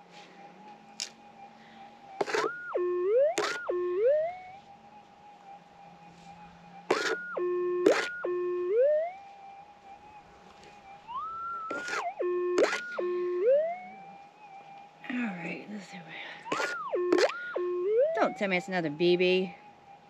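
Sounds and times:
metal detector target signal: 2.2 - 4.3, 6.9 - 9.1, 11.6 - 13.8, 16.5 - 19.0
metal detector threshold hum: 2.2 - 4.6, 6.3 - 9.2, 11.0 - 14.0, 16.5 - 19.4
sharp clicks: 16.5 - 17.6.

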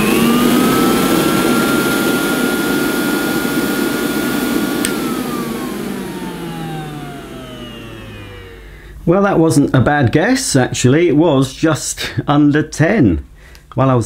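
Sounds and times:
hand-held vacuum cleaner whining: 0.0 - 9.0
switch click: 4.8 - 5.0.

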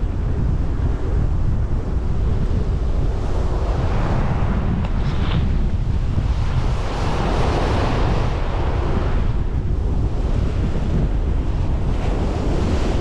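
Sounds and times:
wind buffeting microphone: 0.0 - 13.0
waves washing onto beach: 0.6 - 13.0.

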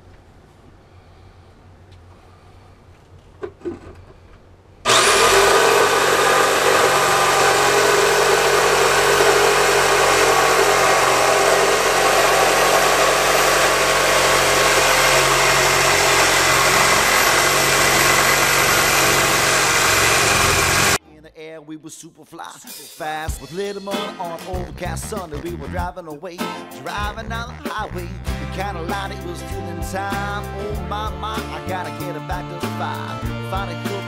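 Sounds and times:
jigsaw cutting wood: 4.9 - 21.0.

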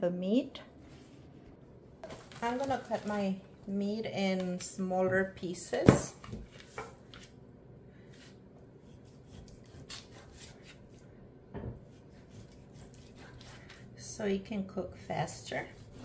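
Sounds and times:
knife sawing through meat: 8.8 - 10.8, 11.9 - 13.8, 15.5 - 16.0.

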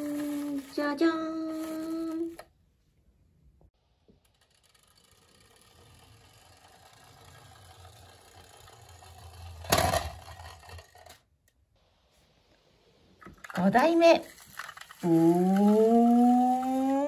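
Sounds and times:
toy wheels rumbling on wood: 0.0 - 2.5, 4.1 - 11.3, 13.2 - 17.0.

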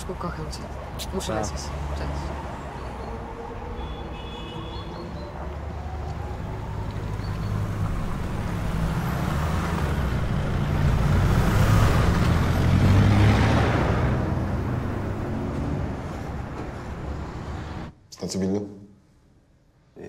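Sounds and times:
trucks driving past: 0.0 - 17.9.

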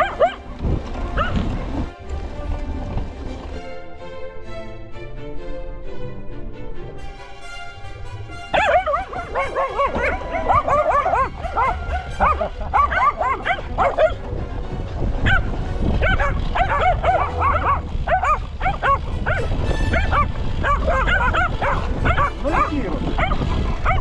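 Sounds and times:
dogs yipping and yelping: 0.0 - 1.5, 8.5 - 14.3, 15.2 - 24.0
bike rolling on dirt: 0.0 - 4.0, 8.8 - 24.0.

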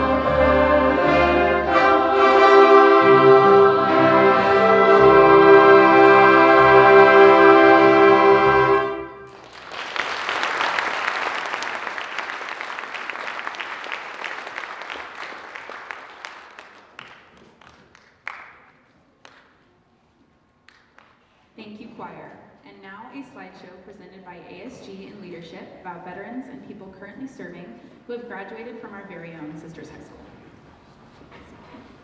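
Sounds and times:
choir and band chord: 0.0 - 9.3
audience applauding: 9.2 - 19.5.

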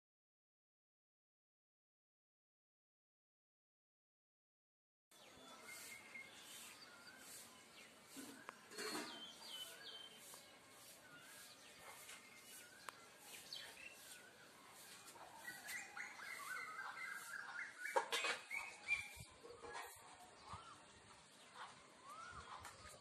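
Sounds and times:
small birds chirping: 5.1 - 23.0.

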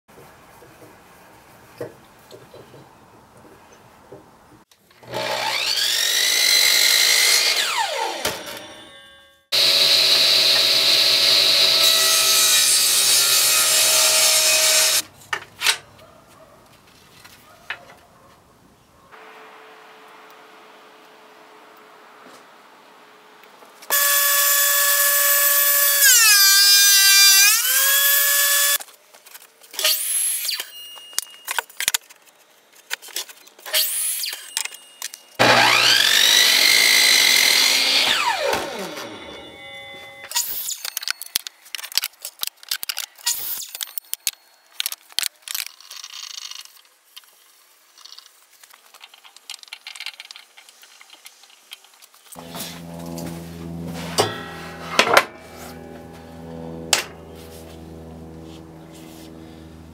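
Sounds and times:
power tool motor running: 5.0 - 8.4, 9.5 - 12.0, 23.9 - 28.8, 35.4 - 39.5, 52.4 - 59.9
table saw spinning: 5.0 - 15.0, 23.8 - 28.8, 35.4 - 40.7, 52.4 - 59.9.

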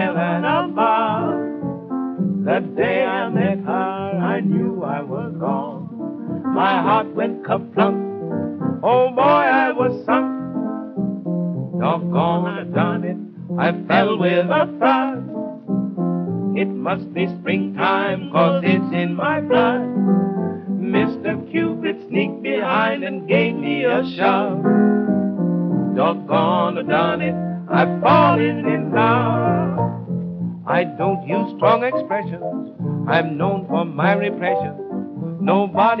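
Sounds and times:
male vocal duet singing: 0.0 - 1.4, 2.5 - 5.8, 6.6 - 8.0, 8.8 - 10.3, 11.8 - 15.3, 16.6 - 19.9, 20.8 - 24.7, 26.0 - 29.8, 30.7 - 32.4, 33.1 - 34.8, 35.4 - 36.0
piano accompaniment: 0.0 - 36.0.

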